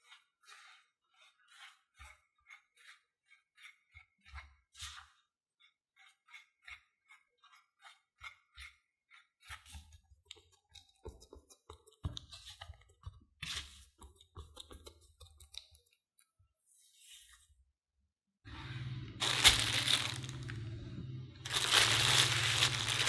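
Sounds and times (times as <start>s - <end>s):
spatula scraping in ceramic bowl: 0.0s - 11.0s.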